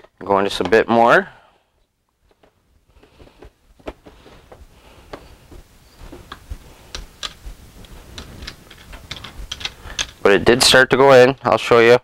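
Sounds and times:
plastic and metal parts clicking: 8.2 - 10.2.

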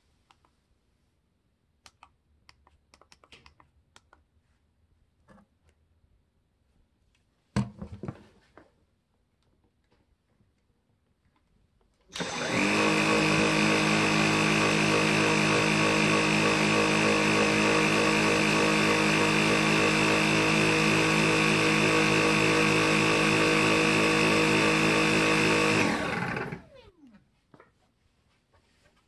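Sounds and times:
vacuum cleaner motor whining: 12.1 - 27.3
vacuum brush roll spinning: 12.2 - 27.0.

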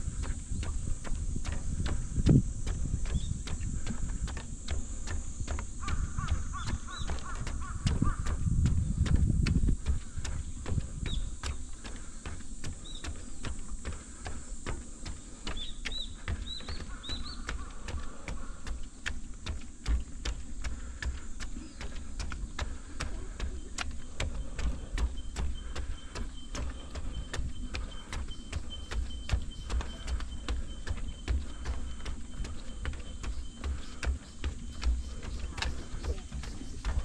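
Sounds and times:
wind rumble on microphone: 0.0 - 13.6
footsteps on a trail: 0.0 - 37.0
bird chirps: 5.8 - 8.3, 10.4 - 12.0, 12.8 - 14.0, 15.1 - 18.9, 21.2 - 37.0.

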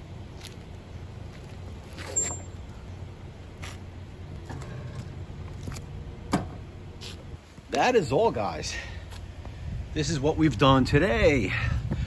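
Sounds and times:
motorcycle rolling scuffs and clicks: 0.2 - 7.8.

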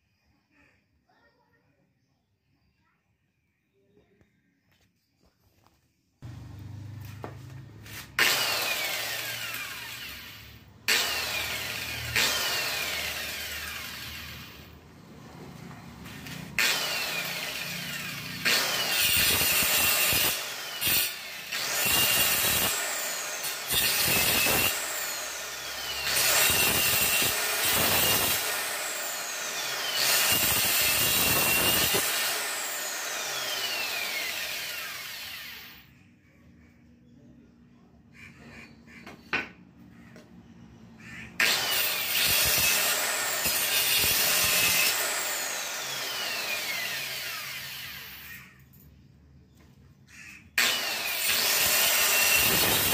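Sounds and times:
angle grinder cutting wood: 6.2 - 35.9, 41.4 - 48.6, 50.6 - 52.9.

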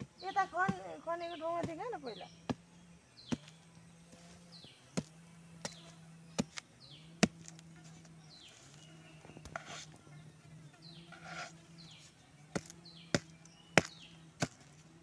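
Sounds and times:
knife striking into soil: 4.9 - 7.7, 12.5 - 14.8.

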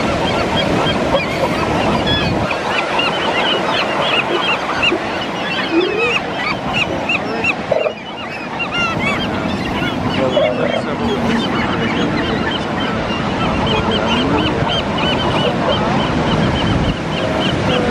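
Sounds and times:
birds honking: 0.0 - 17.9
surf: 0.0 - 17.9.

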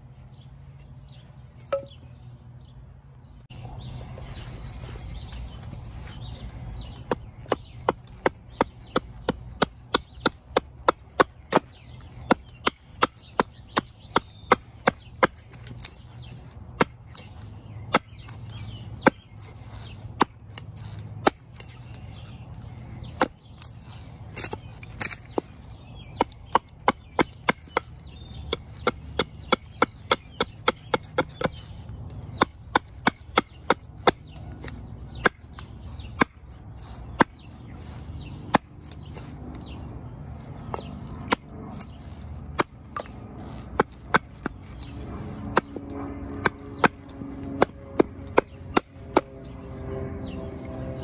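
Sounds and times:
hatchet chopping wood: 7.0 - 16.1, 16.7 - 22.1, 23.0 - 39.3, 40.7 - 49.6.

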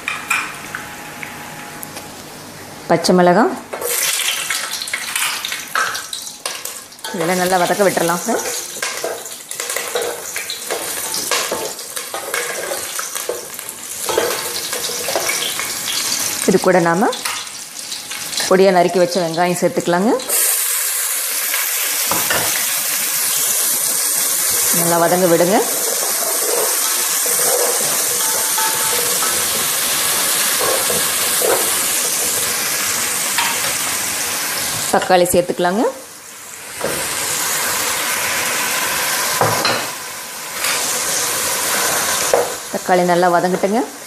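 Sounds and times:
spices sizzling in hot oil: 3.8 - 44.0.

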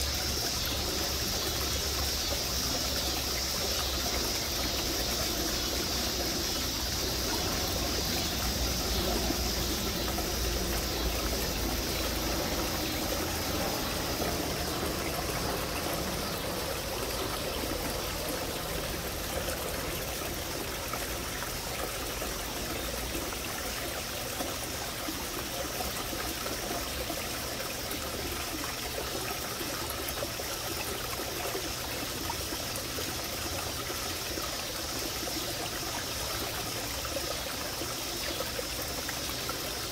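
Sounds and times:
water trickling into pond: 0.0 - 39.9.

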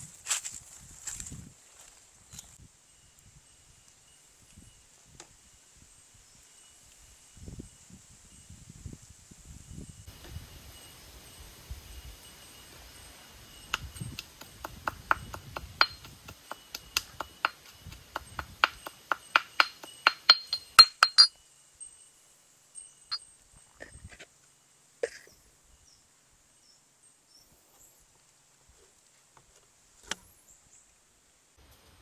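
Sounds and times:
metal pestle pounding in mortar: 14.2 - 21.3.

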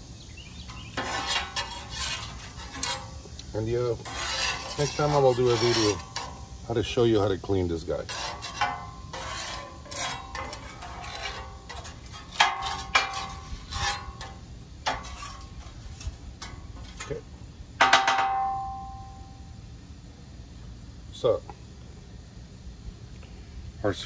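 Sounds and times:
metal scraper on griddle: 0.5 - 19.2
metal plate ringing: 17.8 - 19.5.

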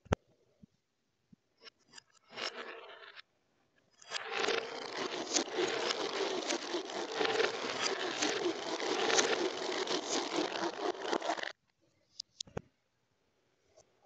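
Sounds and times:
marbles rolling on plastic track: 2.3 - 3.2, 4.0 - 11.5.

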